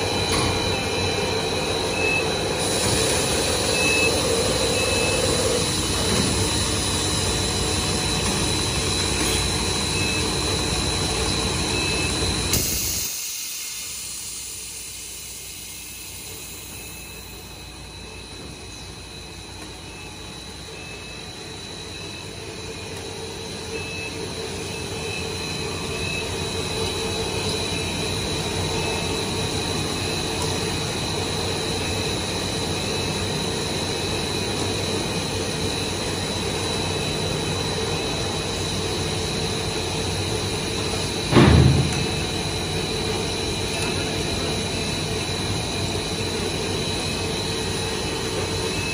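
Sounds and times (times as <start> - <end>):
machine humming with high whine: 0.0 - 48.9
loud thump: 41.3 - 42.2.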